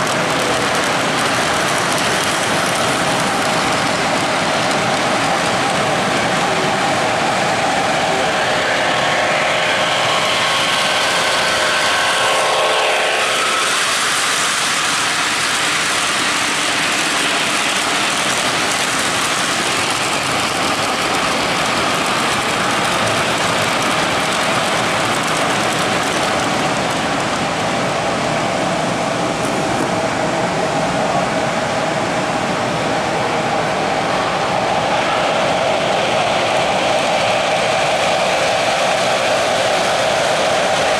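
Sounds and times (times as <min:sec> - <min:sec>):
model train wheels rolling on rail: 0:00.0 - 0:31.3, 0:34.1 - 0:40.9.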